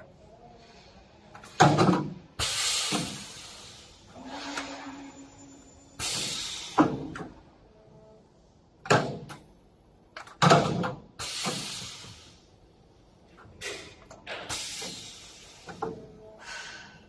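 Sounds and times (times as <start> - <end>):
metal sliding and scraping: 4.1 - 6.0.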